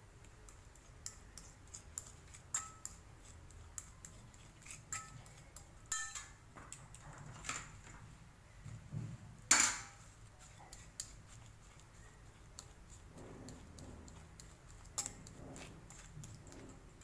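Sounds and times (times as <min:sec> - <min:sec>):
fork mashing in glass bowl: 0:00.1 - 0:07.8, 0:08.6 - 0:17.0
sharp clink: 0:05.9 - 0:06.3.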